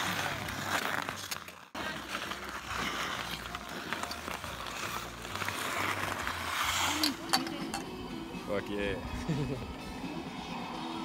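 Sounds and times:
skates scraping ice: 0:00.0 - 0:07.8.

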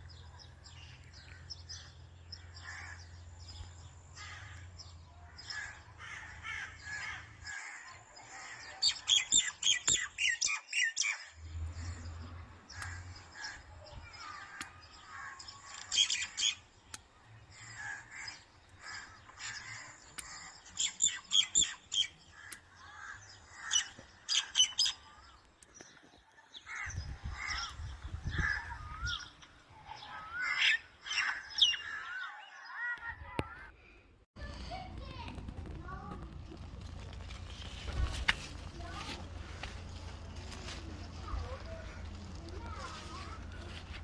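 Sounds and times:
birds chirping: 0:00.0 - 0:33.6.

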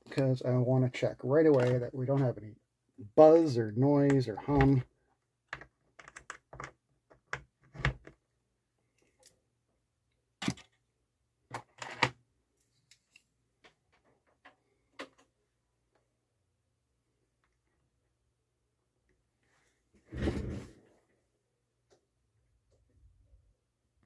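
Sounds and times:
cable plugs clicking and knocking: 0:01.4 - 0:02.3, 0:03.2 - 0:08.3.

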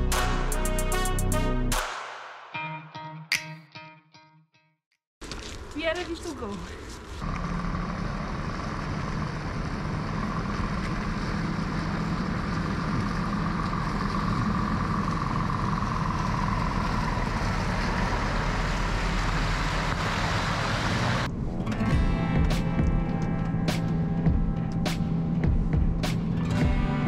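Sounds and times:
truck diesel engine: 0:07.2 - 0:27.0.

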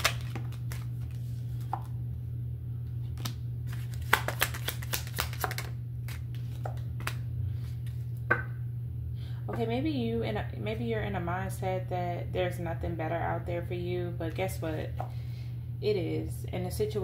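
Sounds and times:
cards being shuffled: 0:00.0 - 0:01.9, 0:03.0 - 0:08.0
steady low hum: 0:00.0 - 0:17.0
cards laid on table: 0:03.2 - 0:08.4.

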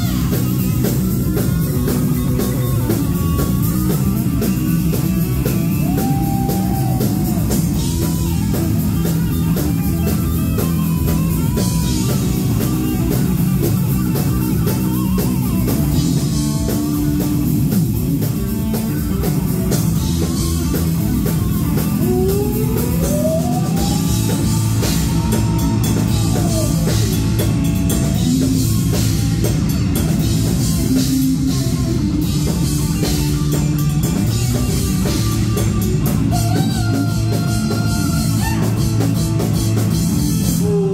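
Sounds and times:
gliding lead guitar line: 0:00.0 - 0:40.9
heavy metal band playing: 0:00.0 - 0:40.9.

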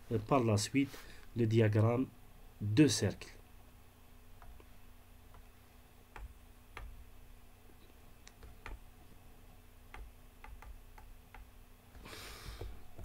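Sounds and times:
low steady hum: 0:00.0 - 0:13.0
computer mouse clicks: 0:09.9 - 0:11.5.

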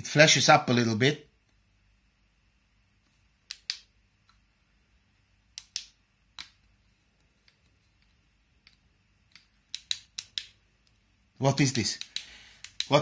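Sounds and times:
small plastic clicks: 0:05.6 - 0:11.0.

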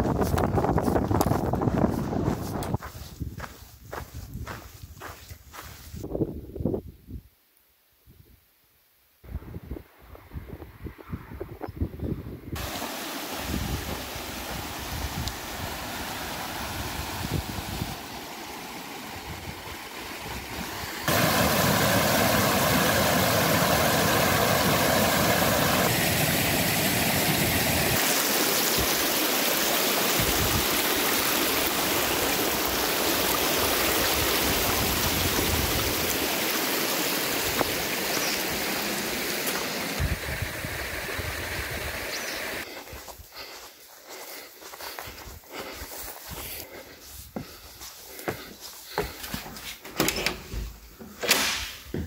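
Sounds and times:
stream rushing over stones: 0:12.6 - 0:42.7.

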